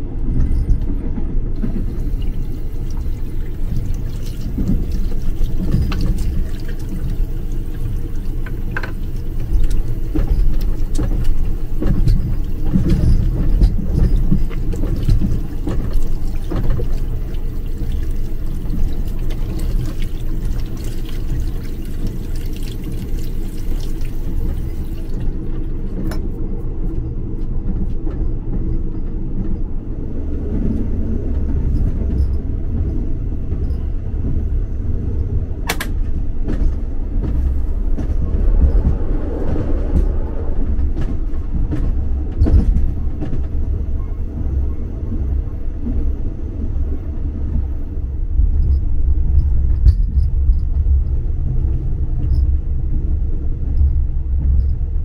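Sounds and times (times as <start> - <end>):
train low rumble: 0.0 - 55.0
tap running into metal basin: 1.8 - 25.6
sharp clicks and knocks: 35.6 - 37.4.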